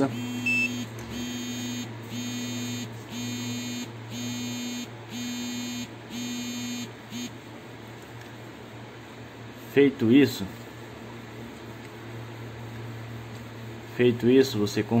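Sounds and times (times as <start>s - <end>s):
electronic buzzer pulses: 0.0s - 7.4s.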